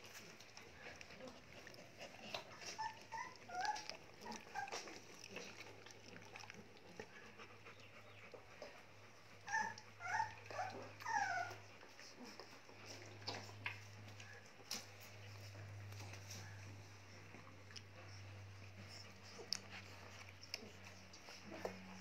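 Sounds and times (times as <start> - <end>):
puppies whimpering: 0.3 - 5.6, 6.9 - 14.5.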